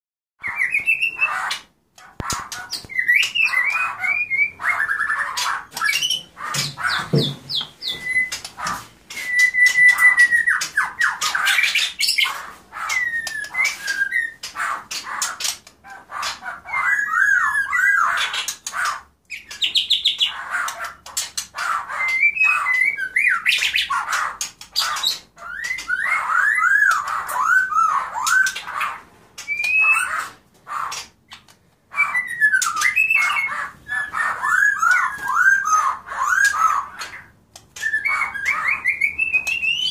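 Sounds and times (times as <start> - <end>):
bird singing whistled phrases: 0.4 - 1.4, 2.8 - 6.2, 6.8 - 8.4, 9.1 - 12.2, 22.0 - 23.8, 29.5 - 30.2, 31.9 - 39.9
bird clicks and harsh notes: 0.4 - 39.9.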